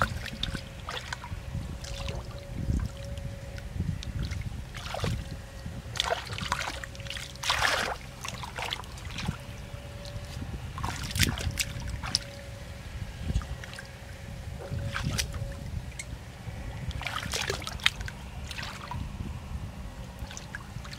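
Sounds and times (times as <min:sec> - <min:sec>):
hands sloshing in muddy water: 0:00.0 - 0:02.4, 0:04.0 - 0:05.3, 0:05.9 - 0:12.4, 0:14.6 - 0:15.5, 0:16.9 - 0:19.0.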